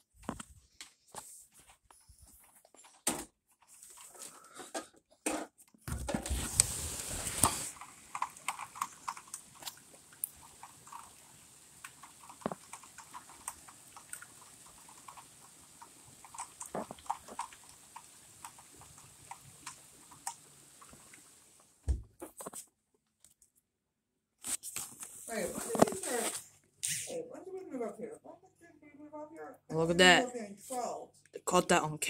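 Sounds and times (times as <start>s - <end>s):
raindrops tapping on a surface: 5.9s - 22.0s
rain hiss: 6.2s - 21.8s, 25.0s - 27.1s.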